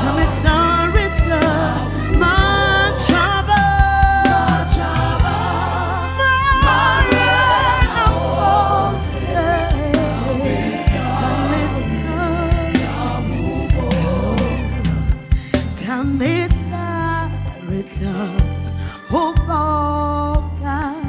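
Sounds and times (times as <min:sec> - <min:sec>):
choir singing with vibrato: 0:00.0 - 0:16.0
band of bass keyboards and drums: 0:00.0 - 0:21.0
woman singing lead: 0:00.0 - 0:21.0.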